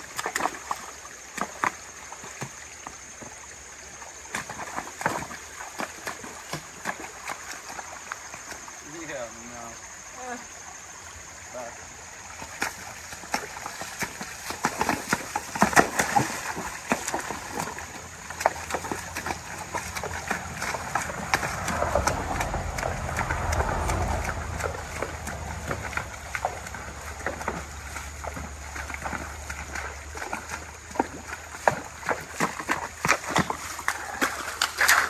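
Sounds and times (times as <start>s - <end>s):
horse hooves splashing on stones: 0.0s - 9.3s, 12.3s - 35.0s
low rumble: 21.1s - 26.9s.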